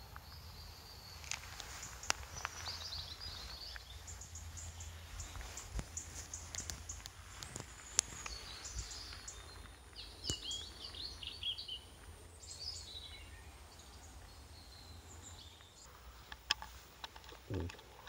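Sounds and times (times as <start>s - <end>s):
small bird chirping: 0.0s - 18.0s
sharp clicks: 15.6s - 18.0s.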